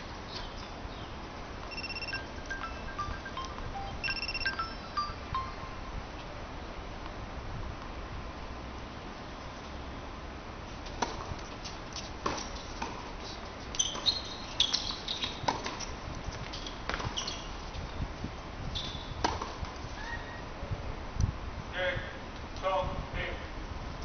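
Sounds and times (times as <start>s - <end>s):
shoes squeaking on court: 10.8s - 18.0s, 18.7s - 20.3s
racket hitting tennis ball: 10.9s - 13.1s, 19.2s - 19.8s
tennis ball bouncing: 10.9s - 13.1s, 13.9s - 15.9s, 19.2s - 19.8s.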